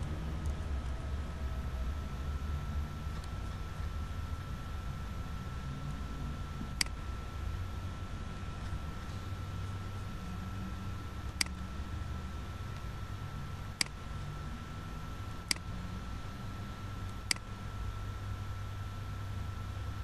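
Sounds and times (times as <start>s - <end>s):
faint high whine: 0.0s - 20.0s
low hum: 0.0s - 20.0s
computer mouse clicking: 6.7s - 7.0s, 11.2s - 11.6s, 13.8s - 14.0s, 15.4s - 15.7s, 17.0s - 17.5s.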